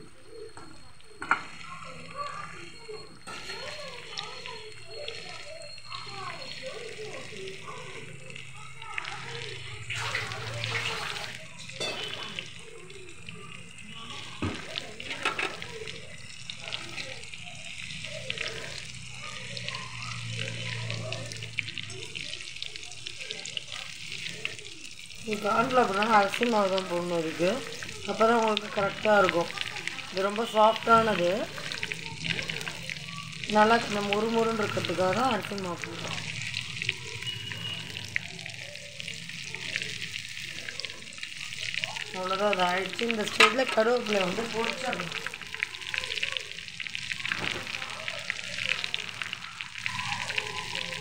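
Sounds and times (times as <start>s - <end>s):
batter-coated food deep-frying in oil: 0.0s - 51.0s
spatula turning food in oil: 0.0s - 51.0s
metal spoon stirring in pan: 3.0s - 7.0s, 10.0s - 12.8s, 14.4s - 17.0s, 42.3s - 45.7s.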